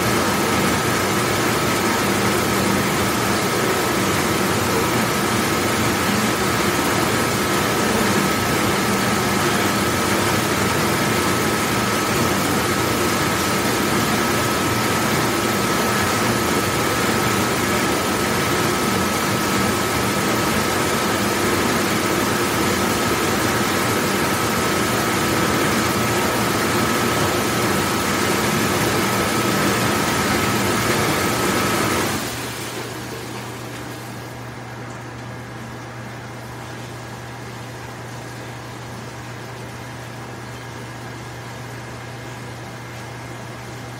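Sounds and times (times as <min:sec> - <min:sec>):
dishwashing machine running: 0:00.0 - 0:43.9.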